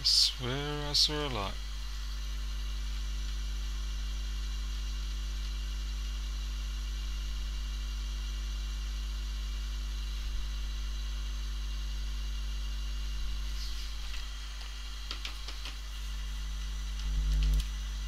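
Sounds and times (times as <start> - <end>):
constant hiss: 0.0 - 3.4, 12.9 - 18.0
electrical mains hum: 0.0 - 18.0.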